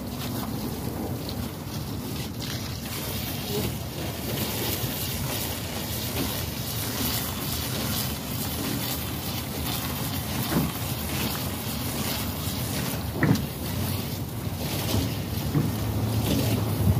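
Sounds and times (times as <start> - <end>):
water spraying from a hose: 0.0 - 16.9
wind buffeting microphone: 0.0 - 16.9.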